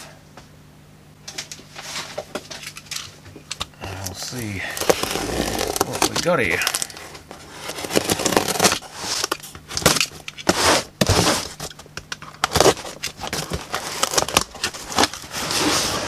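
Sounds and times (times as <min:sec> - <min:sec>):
knife slitting packing tape: 0:07.6 - 0:11.8.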